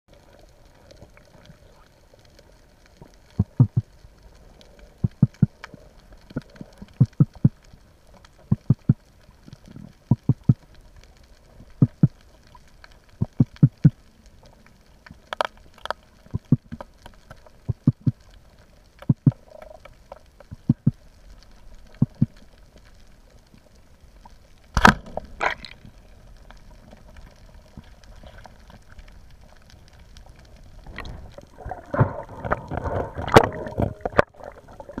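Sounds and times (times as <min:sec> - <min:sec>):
soft low thumps: 0:03.4 - 0:03.9
speargun firing crack: 0:24.8 - 0:25.2.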